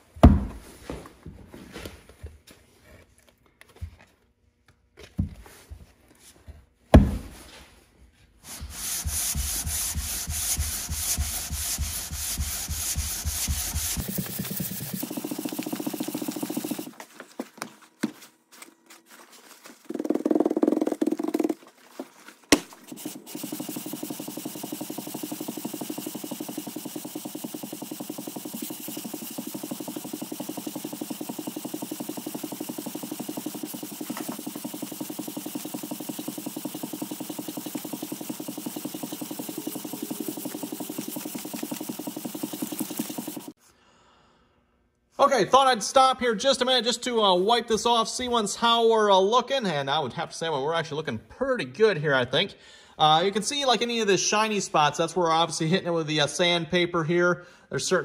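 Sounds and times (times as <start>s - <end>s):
metal scraping on sandpaper: 8.4s - 16.9s, 22.8s - 43.5s.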